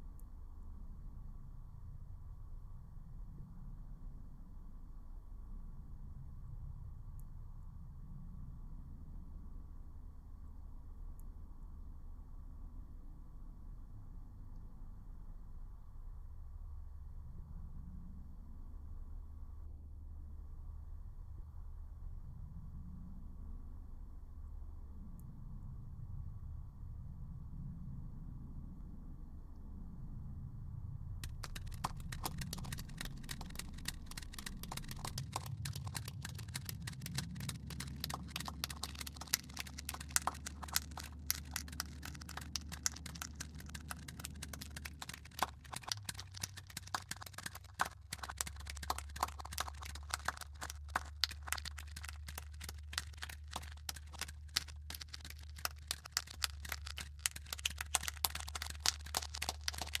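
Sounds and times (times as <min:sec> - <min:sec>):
dense crackling and clicks: 0:31.2 - 1:00.0.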